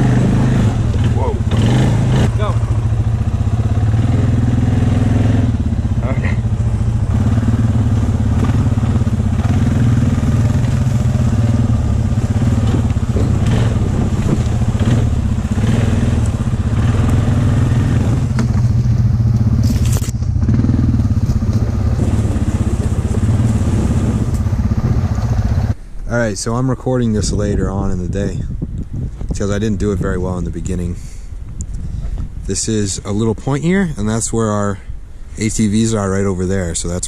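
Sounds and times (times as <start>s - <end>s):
quad bike engine running: 0.0s - 25.8s.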